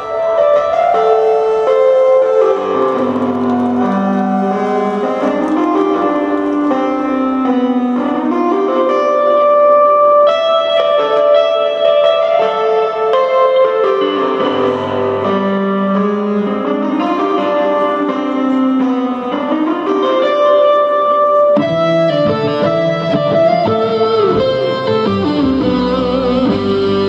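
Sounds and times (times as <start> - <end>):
guitar melody: 0.0 - 27.0
keyboard piano lines: 0.0 - 27.0.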